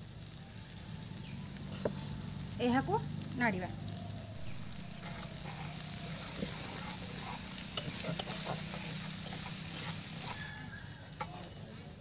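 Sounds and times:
potatoes sizzling in oil: 0:00.0 - 0:12.0
metal spatula scraping pan: 0:04.4 - 0:11.5.

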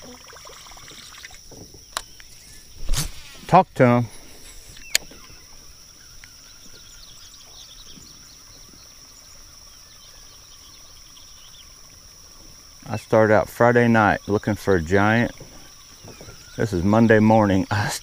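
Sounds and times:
high-pitched insect drone: 0:00.0 - 0:02.9
birds chirping: 0:00.0 - 0:18.0.

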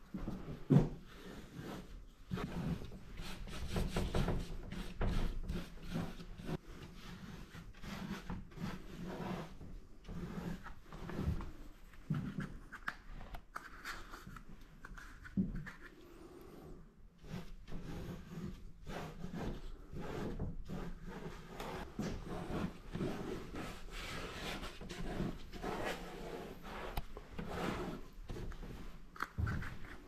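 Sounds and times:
tool scraping across paper: 0:01.1 - 0:11.4, 0:17.2 - 0:30.0.

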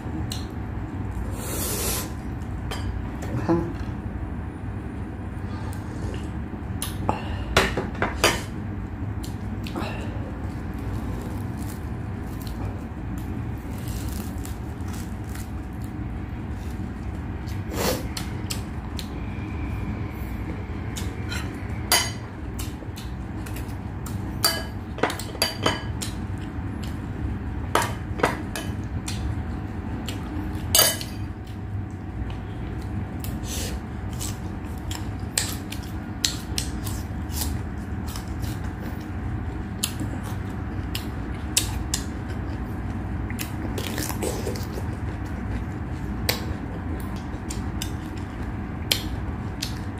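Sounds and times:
low background hum: 0:00.0 - 0:49.9
chewing and mouth smacks: 0:34.1 - 0:49.9.

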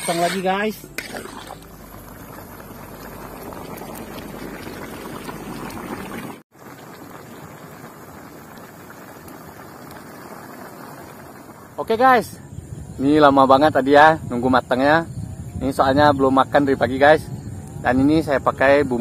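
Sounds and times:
broth bubbling in a wok: 0:01.0 - 0:13.0.

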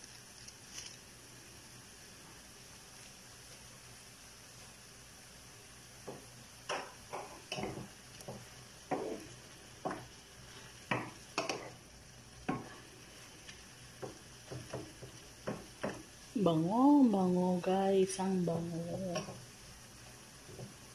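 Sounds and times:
sauce simmering: 0:00.0 - 0:18.2, 0:19.2 - 0:20.9
wooden spatula scraping a pan: 0:07.1 - 0:16.2.

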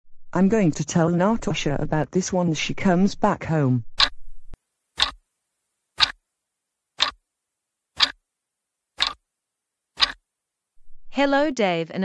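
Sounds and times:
clock ticking: 0:04.0 - 0:04.3, 0:05.0 - 0:05.2, 0:06.0 - 0:06.2, 0:07.0 - 0:07.2, 0:08.0 - 0:08.2, 0:09.0 - 0:09.2, 0:10.0 - 0:10.2.

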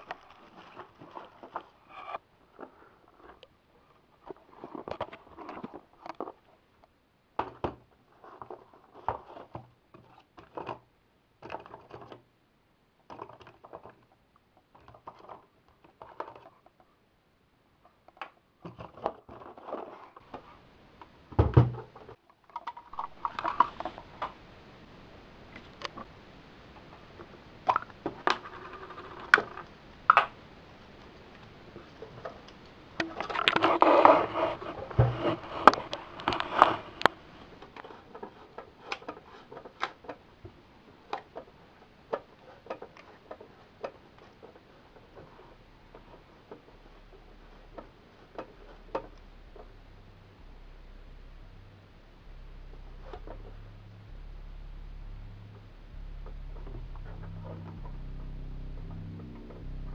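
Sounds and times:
steady hiss: 0:22.9 - 0:59.9
heavy thump: 0:34.8 - 0:35.5.

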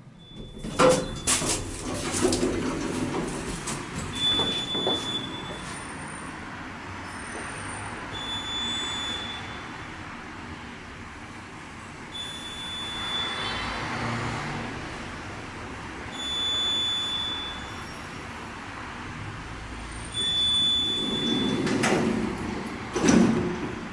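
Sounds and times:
elevator doors sliding closed: 0:00.0 - 0:05.9, 0:20.1 - 0:23.9
high electronic beep: 0:08.2 - 0:09.6, 0:12.2 - 0:13.6, 0:16.2 - 0:17.8.

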